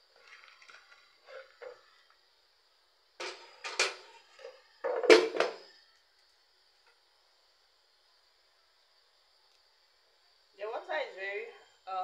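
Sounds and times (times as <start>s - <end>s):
knocking and scraping: 3.2s - 5.7s.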